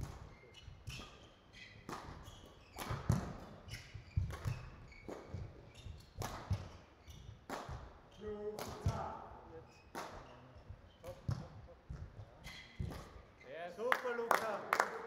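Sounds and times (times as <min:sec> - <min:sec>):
shoes squeaking on court floor: 0:00.0 - 0:13.6
rackets hitting shuttlecock: 0:01.8 - 0:03.6, 0:08.6 - 0:09.1, 0:12.8 - 0:13.2.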